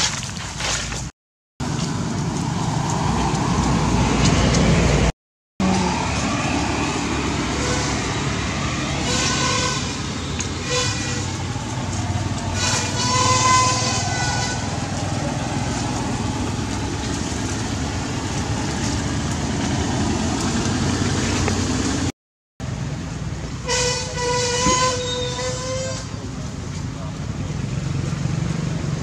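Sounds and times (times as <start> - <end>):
road traffic rumble: 0.1 - 29.0
vehicle horn: 7.5 - 8.2, 8.8 - 11.4, 12.5 - 14.8, 23.6 - 26.2.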